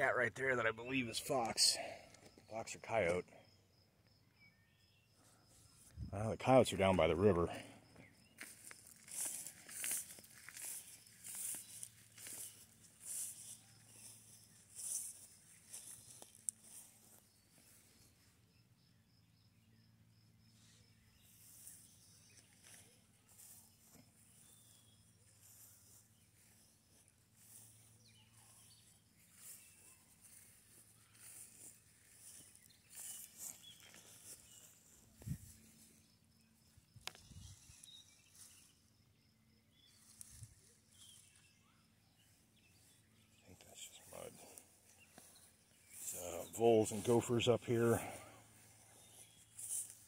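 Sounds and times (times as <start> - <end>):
footsteps on a trail: 6.9 - 18.2, 21.1 - 38.8, 39.7 - 50.0.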